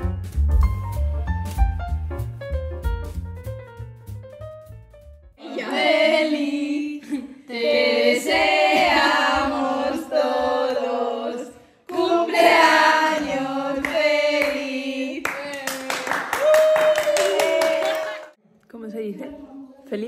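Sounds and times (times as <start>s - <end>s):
high voices singing together: 5.4s - 15.6s.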